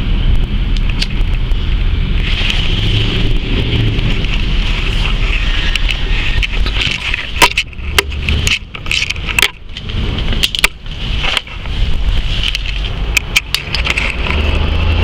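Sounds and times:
wind rumbling on microphone: 0.0s - 15.0s
sharp clicks and knocks: 3.9s - 11.8s, 12.4s - 14.6s
camera handling noise: 4.2s - 14.4s.

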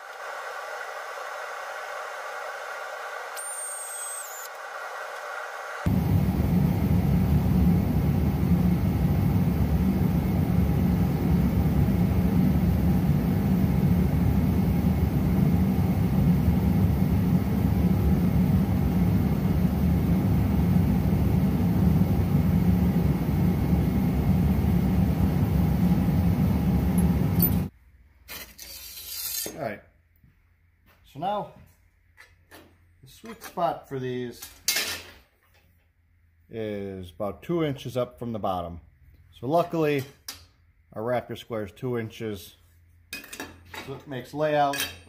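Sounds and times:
loud deep machine noise: 0.0s - 27.7s.

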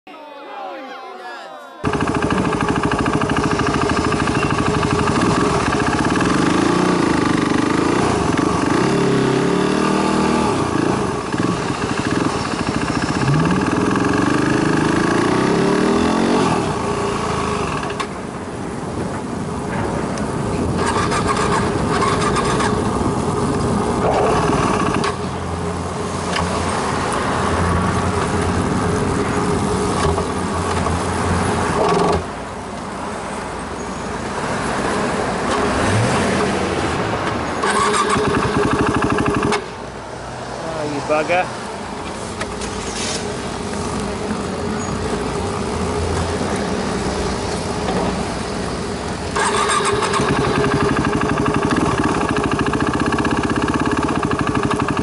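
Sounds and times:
motorcycle engine revving: 1.9s - 18.3s, 20.7s - 25.4s, 37.6s - 39.8s, 43.6s - 55.0s.

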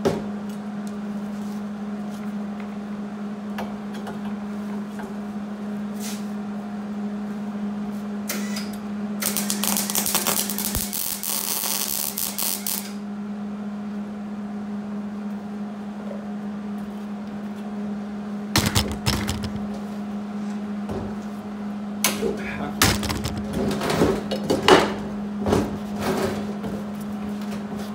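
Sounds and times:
welder arc crackling: 9.2s - 13.0s, 18.6s - 19.7s, 22.8s - 23.6s
steady hum: 18.6s - 20.0s, 22.6s - 24.0s.

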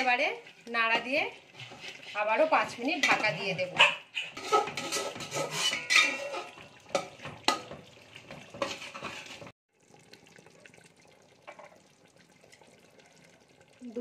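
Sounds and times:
spatula scraping a metal pot: 0.0s - 9.5s.

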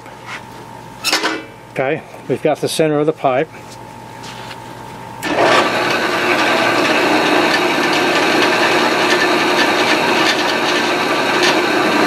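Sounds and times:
drill cutting into metal pipe: 5.2s - 12.0s.

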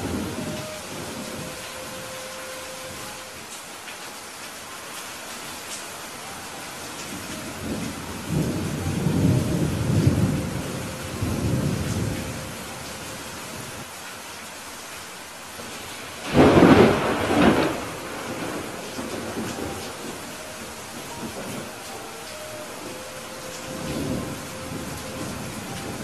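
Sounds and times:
low rolling thunder: 0.0s - 2.2s, 7.1s - 13.8s, 15.6s - 26.0s
steady rain: 0.0s - 26.0s
sharp thunderclap: 16.2s - 20.0s.

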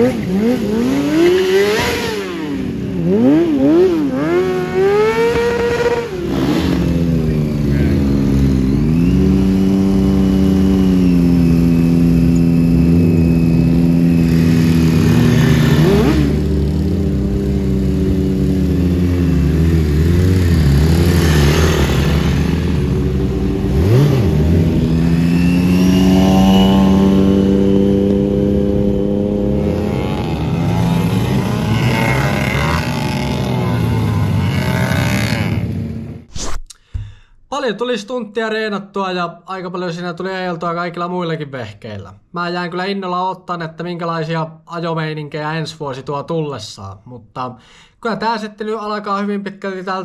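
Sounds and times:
motorcycle engine revving: 0.0s - 36.3s.

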